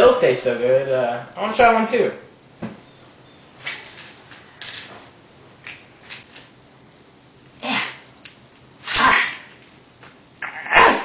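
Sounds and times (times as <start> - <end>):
faint knocks and rustles: 2.6 - 3.0
person sneezing or coughing: 8.8 - 9.5, 10.6 - 11.0.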